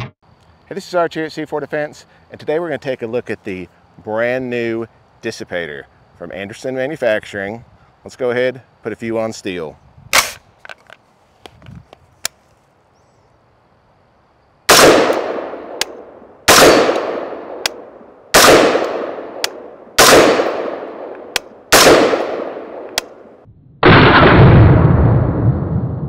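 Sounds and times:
bullet pinging steel target: 14.7 - 17.8
rifle shots echoing: 14.7 - 24.7.

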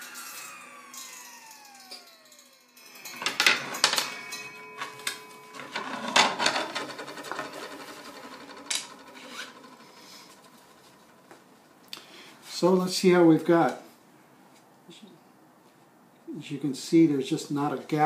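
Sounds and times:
saw blade whine coasting down: 0.0 - 11.8.

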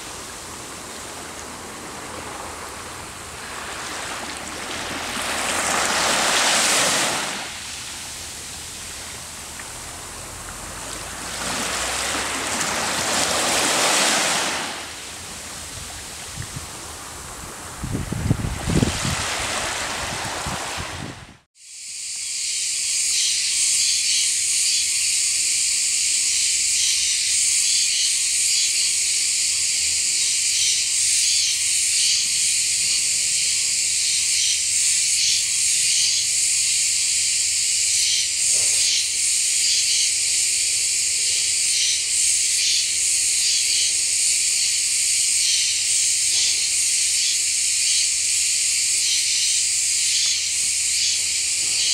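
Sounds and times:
high-pitched insect chorus: 0.0 - 20.8, 21.6 - 51.9
small waves washing on beach: 0.0 - 21.5.

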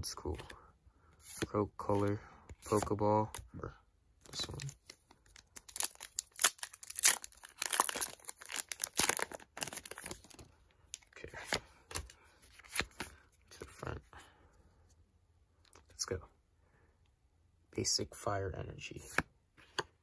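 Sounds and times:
foil wrapper tearing and crinkling: 5.3 - 10.3.

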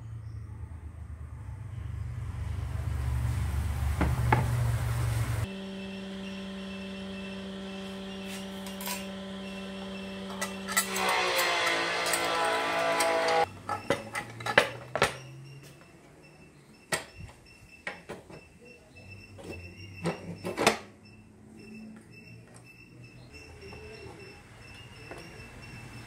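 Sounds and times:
scroll saw cutting wood: 6.1 - 13.5.

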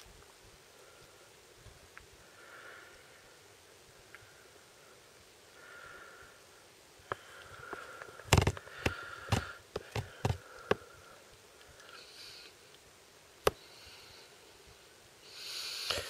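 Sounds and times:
kittens suckling snuffling: 7.2 - 11.1, 15.3 - 16.0
sharp clicks and knocks: 8.3 - 10.8.

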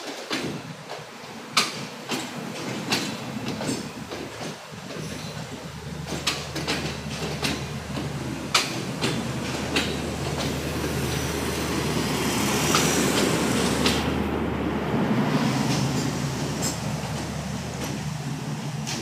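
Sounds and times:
wheel clicks over rail joints: 0.0 - 11.3
train coaches rumbling past: 0.0 - 19.0.

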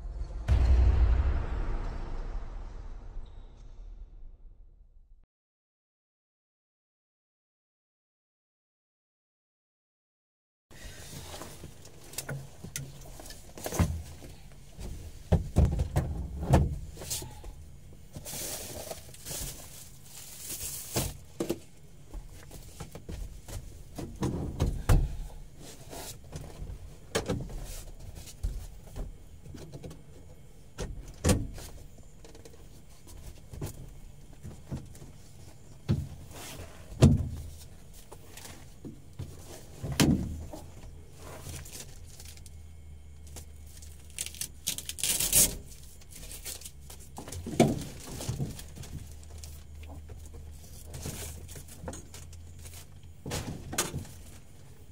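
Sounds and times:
cloth and plastic rustling: 18.2 - 21.4.

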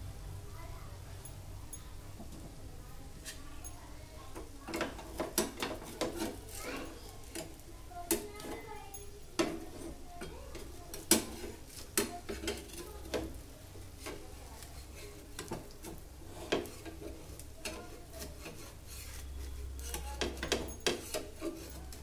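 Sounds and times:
metal spatula scraping a pan: 4.8 - 8.7, 9.4 - 22.0.

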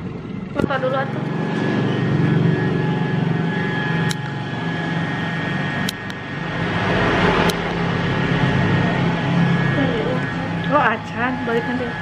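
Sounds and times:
hair clipper buzzing: 3.8 - 4.6
sharp clicks: 5.8 - 6.2, 7.4 - 7.8.

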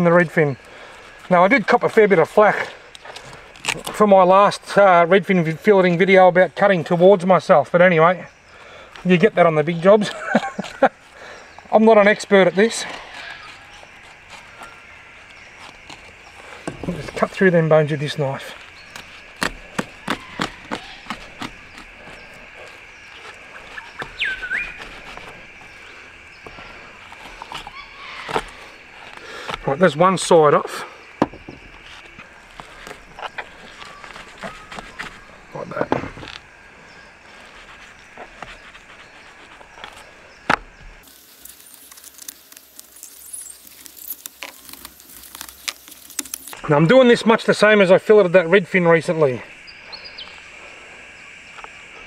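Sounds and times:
faint steady hiss: 21.5 - 52.0
bird whistled call: 23.8 - 24.8
knife cracking through fish bones: 41.3 - 46.6.

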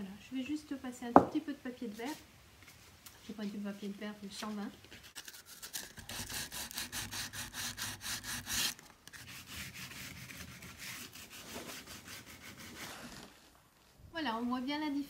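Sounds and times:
hand sanding wood: 5.2 - 13.1.

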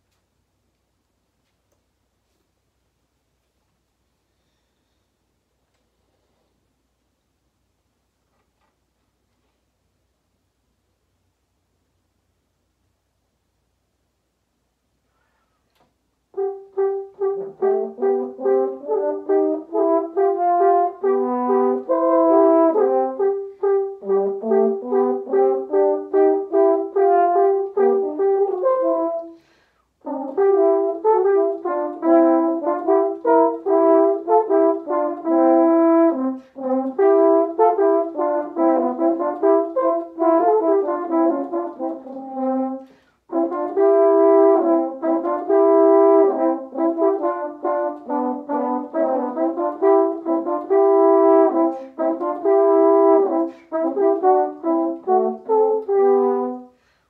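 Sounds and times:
french horns playing duet: 16.3 - 57.0.

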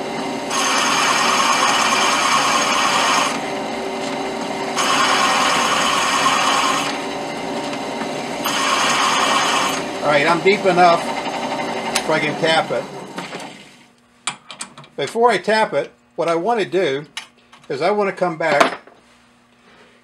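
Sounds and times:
drill press running: 0.0 - 13.9
drill bit cutting metal: 0.5 - 3.6, 4.7 - 7.1, 8.4 - 12.6.

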